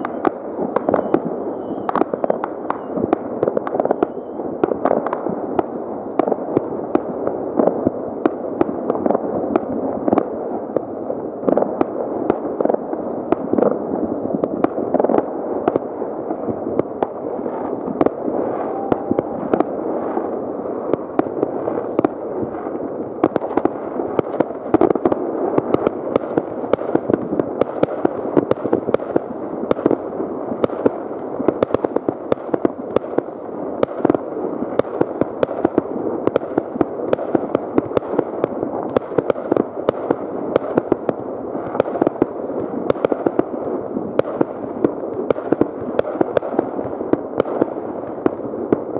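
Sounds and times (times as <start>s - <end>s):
distant firework bangs: 0.0s - 48.9s
sharp firecracker cracks: 20.9s - 48.9s.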